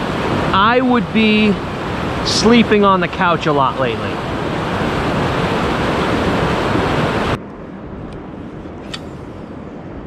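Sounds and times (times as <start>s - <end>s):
water rushing through channel: 0.0s - 7.4s.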